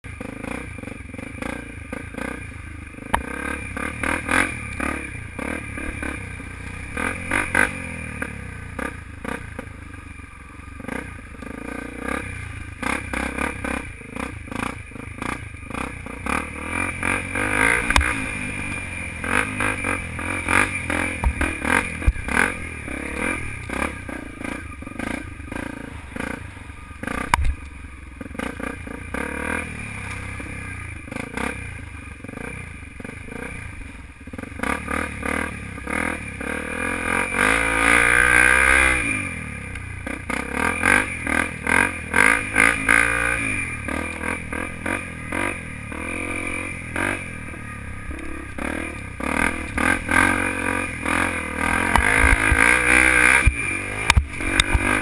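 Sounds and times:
motorcycle engine revving: 0.0s - 55.0s
sharp knocks from motorcycle: 21.2s - 22.2s, 27.3s - 27.6s, 51.8s - 52.7s, 53.4s - 55.0s.

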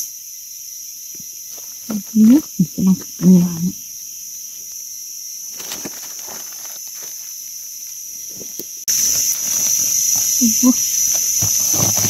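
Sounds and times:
insects droning: 0.0s - 12.0s
rustling of dry leaf litter: 5.4s - 12.0s.

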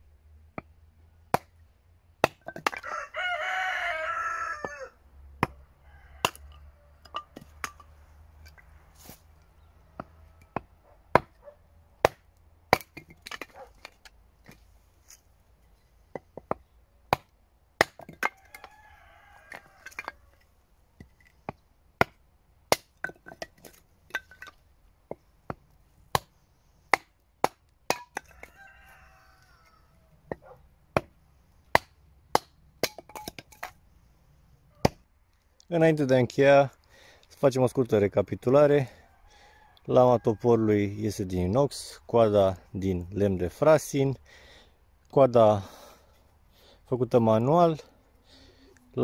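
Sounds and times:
hatchet chopping wood: 1.3s - 1.6s, 2.2s - 2.9s, 6.2s - 7.9s, 10.0s - 11.4s, 12.0s - 14.6s, 16.1s - 18.8s, 21.0s - 24.5s, 25.1s - 28.5s, 30.3s - 33.7s, 34.8s - 35.1s
rooster crowing: 2.8s - 5.0s, 5.6s - 7.2s, 18.3s - 20.4s, 28.2s - 30.2s, 39.0s - 40.5s.

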